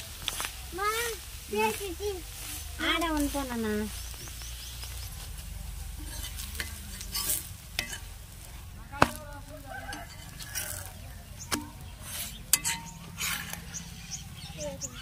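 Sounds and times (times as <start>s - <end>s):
food sizzling in oil: 0.0s - 8.8s
metal spatula scraping griddle: 5.9s - 14.3s.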